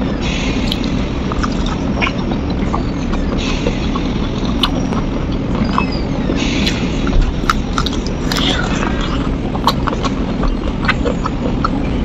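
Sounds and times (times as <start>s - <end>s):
chewing clicks: 0.0s - 12.0s
low rumbling hum: 0.0s - 12.0s
wet mouth smacks and sucking: 0.3s - 5.9s, 6.5s - 11.8s.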